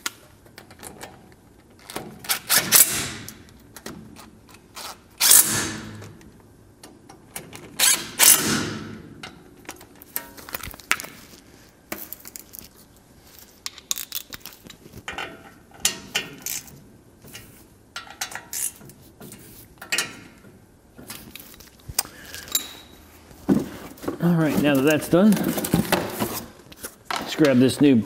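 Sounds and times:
metal tools and bolts clinking: 0:22.3 - 0:23.0.

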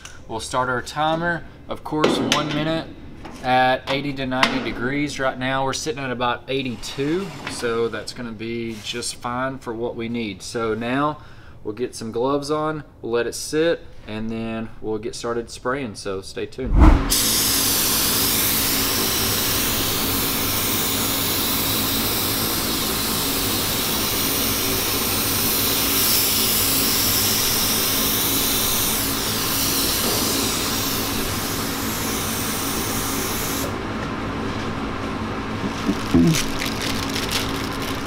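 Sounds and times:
steady machine hum: 0:01.2 - 0:05.2, 0:30.3 - 0:38.0.

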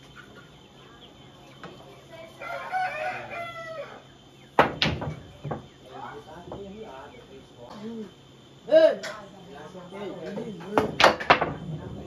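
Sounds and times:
rooster crowing: 0:02.4 - 0:04.1.

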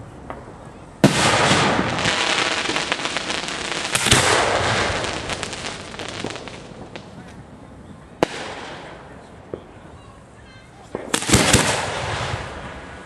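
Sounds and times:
fireworks crackling: 0:00.0 - 0:13.0
firework bang: 0:00.3 - 0:07.3, 0:10.9 - 0:13.0.

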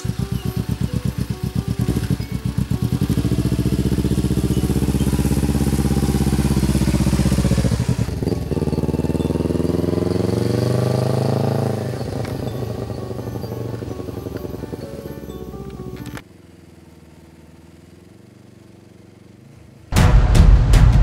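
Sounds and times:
motorcycle engine accelerating: 0:00.0 - 0:20.0.

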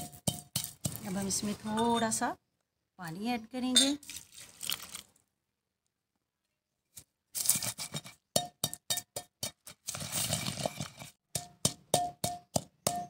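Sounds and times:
wooden pestle pounding in mortar: 0:00.0 - 0:01.4, 0:08.3 - 0:09.8, 0:10.4 - 0:13.0.

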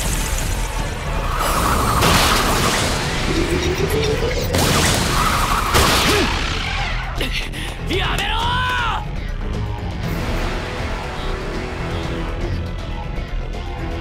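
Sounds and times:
music: 0:00.0 - 0:14.0
rising tone: 0:01.0 - 0:05.7.

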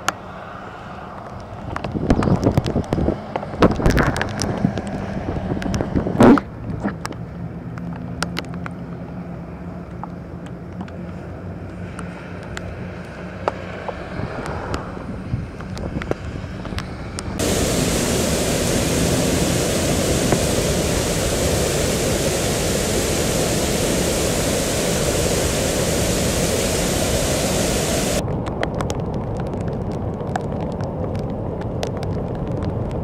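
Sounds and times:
rain: 0:01.2 - 0:05.9, 0:07.0 - 0:10.2, 0:17.4 - 0:33.0
tyres hissing on wet road: 0:17.4 - 0:28.2
water rushing over dam spillway: 0:17.4 - 0:28.2.

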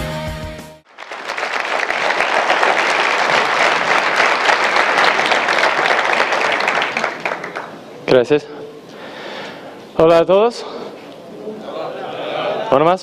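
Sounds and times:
audience applauding: 0:00.9 - 0:07.9.

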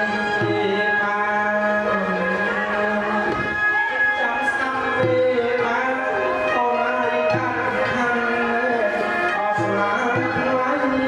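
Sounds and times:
held instrument tones: 0:00.0 - 0:11.0.

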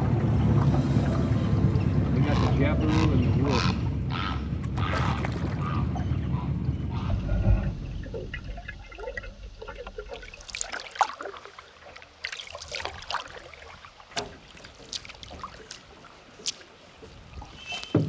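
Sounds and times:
paddle splashing in water: 0:04.6 - 0:06.0, 0:07.6 - 0:18.0
water dripping: 0:07.9 - 0:17.9.

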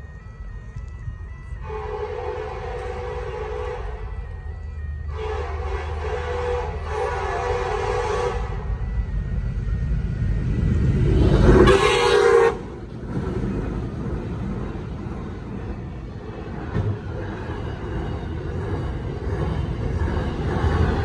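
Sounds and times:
locomotives rumbling past: 0:00.0 - 0:21.0
train horn blast: 0:01.6 - 0:04.1, 0:05.1 - 0:08.8, 0:11.4 - 0:12.8.

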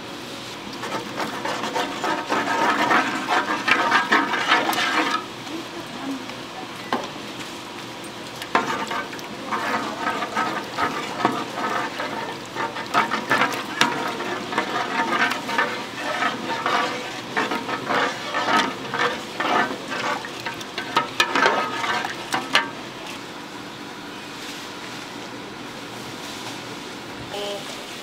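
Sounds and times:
food sizzling: 0:00.5 - 0:23.8
utensil clattering in a pan: 0:00.8 - 0:05.4, 0:08.4 - 0:23.0.

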